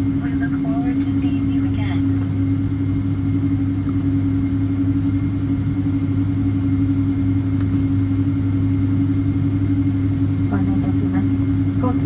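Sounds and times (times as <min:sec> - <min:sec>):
airplane cabin hum: 0:00.0 - 0:12.0.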